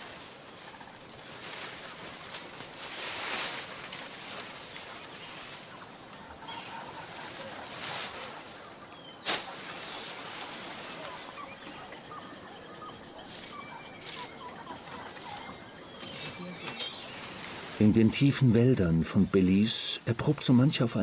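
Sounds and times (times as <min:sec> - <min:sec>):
palm fronds rustling: 0:00.0 - 0:21.0
bird chirps: 0:08.4 - 0:18.4
palm stalk cracking: 0:16.0 - 0:17.0.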